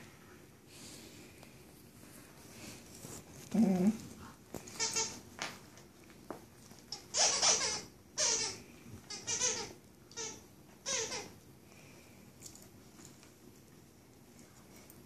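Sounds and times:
puppy low-pitched sound: 3.4s - 4.2s.

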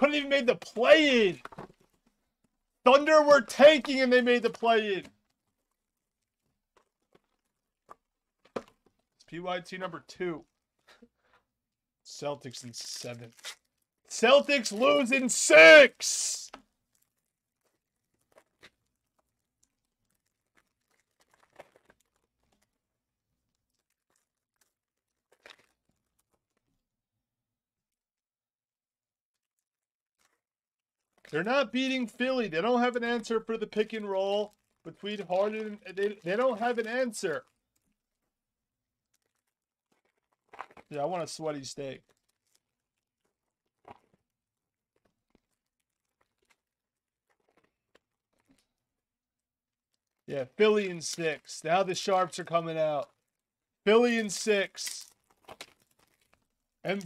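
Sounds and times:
cardboard packaging crinkling: 16.9s - 26.7s, 39.0s - 41.0s, 42.0s - 48.6s, 54.7s - 57.0s.

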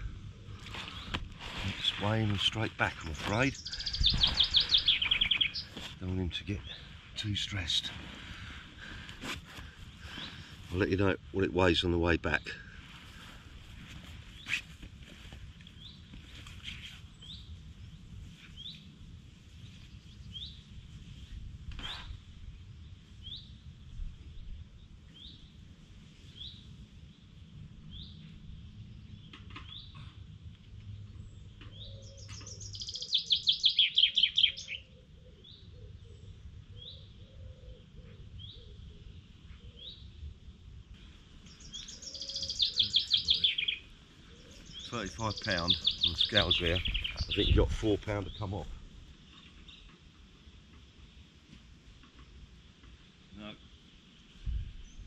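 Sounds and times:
bird rapid falling song: 1.8s - 6.8s, 31.6s - 34.9s, 41.4s - 48.6s
bird rising chirp: 3.4s - 6.0s, 31.7s - 35.8s, 41.4s - 47.7s.

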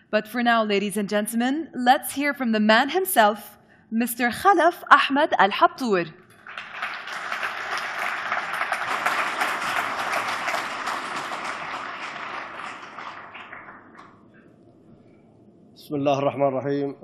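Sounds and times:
audience applauding: 6.3s - 14.2s.

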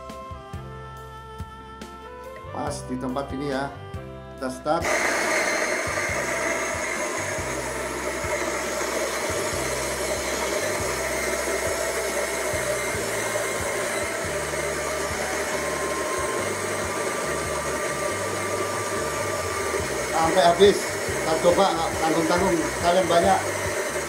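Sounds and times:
electric coffee grinder grinding: 4.8s - 24.0s.

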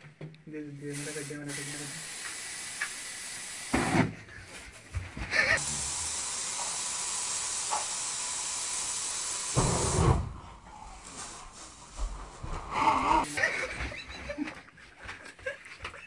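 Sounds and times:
aerosol spray can hissing: 0.9s - 4.0s, 5.5s - 10.2s
burst of flame: 9.5s - 10.5s.

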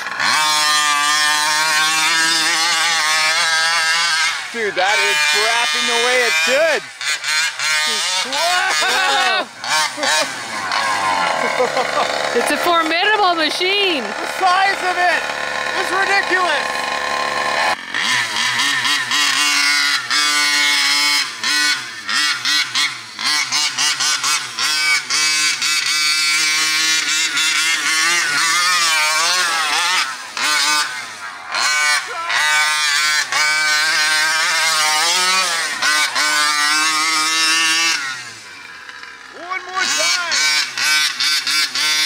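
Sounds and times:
two-stroke engine revving: 0.0s - 42.0s.

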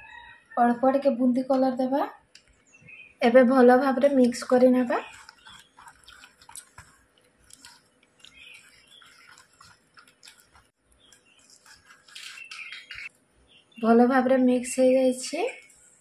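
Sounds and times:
hand squishing batter: 4.0s - 13.1s.

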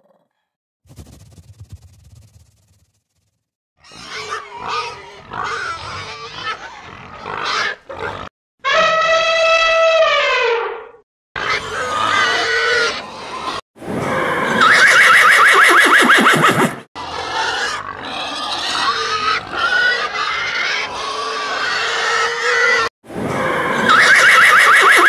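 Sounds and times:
rapid rattling animal call: 23.8s - 25.0s.

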